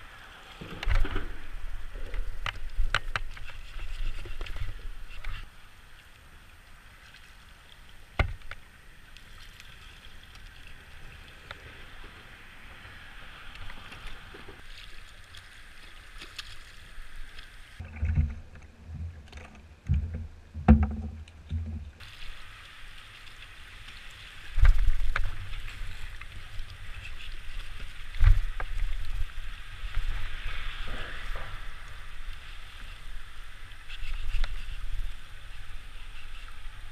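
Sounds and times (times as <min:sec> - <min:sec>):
knocks and low thumps: 0:19.9 - 0:21.9.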